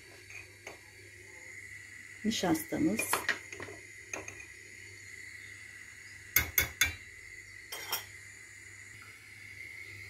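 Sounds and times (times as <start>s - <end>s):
metal spoon clinking on pot: 7.7s - 8.1s.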